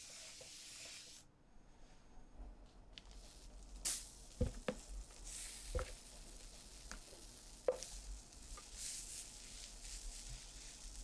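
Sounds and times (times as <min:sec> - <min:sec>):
soft high hiss: 0:00.0 - 0:11.0
batter scraped into frying pan: 0:07.3 - 0:11.0.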